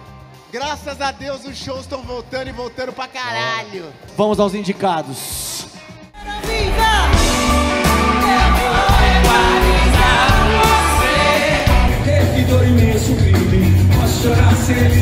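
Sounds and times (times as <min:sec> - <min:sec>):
live rock band: 0:05.6 - 0:15.0
lead singer singing: 0:06.2 - 0:15.0.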